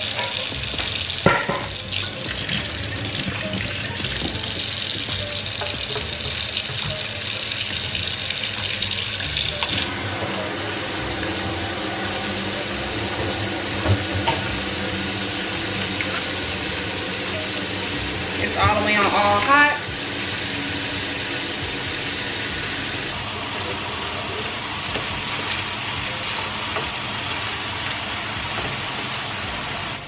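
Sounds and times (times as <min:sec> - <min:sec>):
faucet running into a steel sink: 0:00.0 - 0:23.1.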